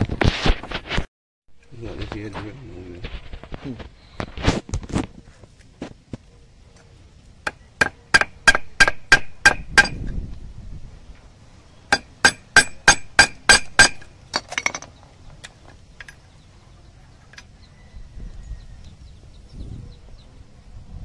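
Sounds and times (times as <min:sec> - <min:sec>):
hammer striking metal: 0:07.5 - 0:10.0, 0:11.9 - 0:14.8.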